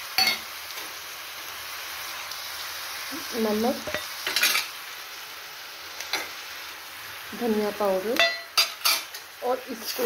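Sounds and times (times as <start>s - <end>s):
food sizzling in oil: 0.0s - 10.0s
spoon scraping pan: 3.8s - 4.7s, 8.2s - 10.0s.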